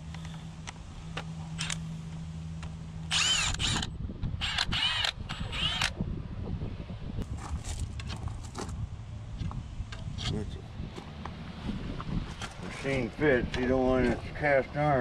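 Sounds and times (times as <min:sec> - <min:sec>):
low steady hum: 0:00.0 - 0:15.0
power drill whine: 0:03.1 - 0:05.9.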